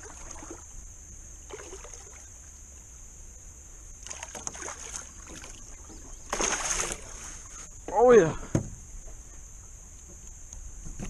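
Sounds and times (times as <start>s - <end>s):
water splashing against boat: 0.0s - 0.8s, 1.5s - 2.3s, 4.0s - 8.8s.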